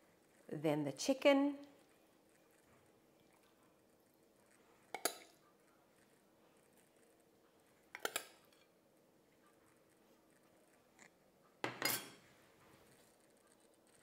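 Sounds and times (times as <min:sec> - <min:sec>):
metal spoon clinking against pot: 0:11.7 - 0:12.2.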